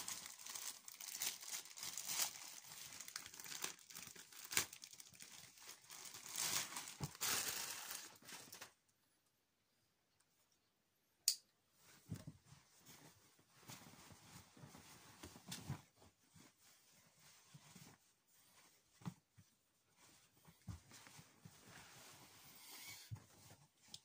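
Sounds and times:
plastic mailer tearing and crumpling: 0.0s - 8.7s
soft handling sounds: 11.6s - 24.0s.

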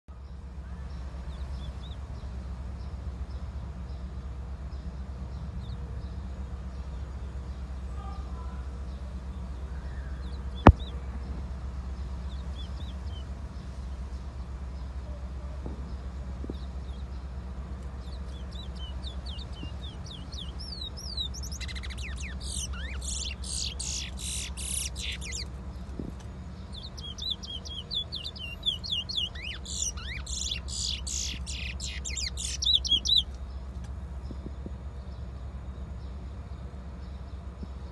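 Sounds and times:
low steady hum: 0.1s - 37.9s
finch chirping and twittering: 12.0s - 14.4s, 18.0s - 33.5s.

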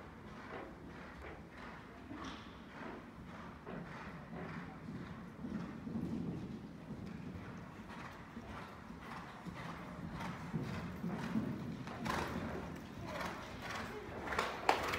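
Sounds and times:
horse hoofbeats on sand: 2.7s - 14.9s.

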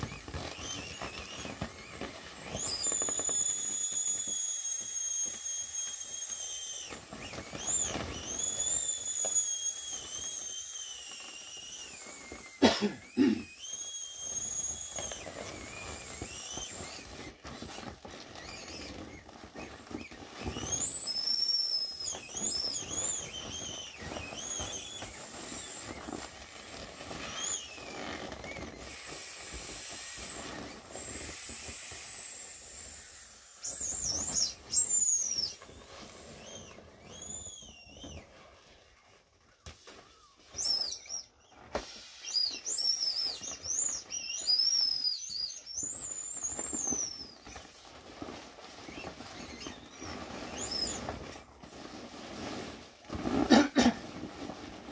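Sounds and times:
inflatable toys squeaking: 0.0s - 54.9s
air hissing: 28.9s - 35.5s, 41.7s - 42.9s.

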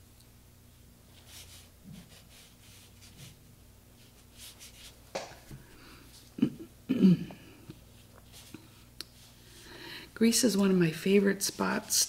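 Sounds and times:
brush scratching on paper: 1.1s - 3.4s, 4.0s - 5.0s.

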